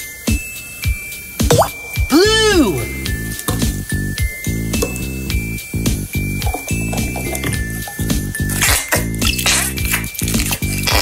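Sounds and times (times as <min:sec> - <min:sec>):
jingly children's tune: 0:00.0 - 0:08.6.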